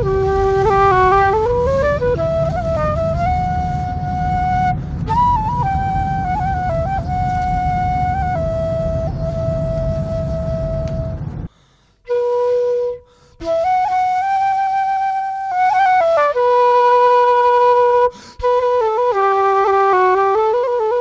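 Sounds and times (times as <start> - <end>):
slow solo melody: 0.0 - 11.5, 12.1 - 21.0.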